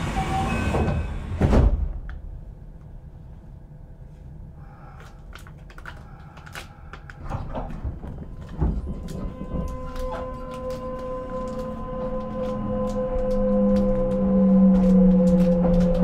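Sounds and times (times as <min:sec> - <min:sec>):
low hum: 0:00.0 - 0:16.0
low thumps: 0:07.2 - 0:16.0.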